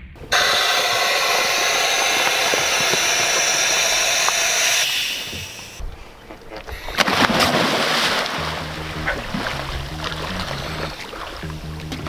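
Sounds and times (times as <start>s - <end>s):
mechanical hiss with whine: 0.0s - 5.8s.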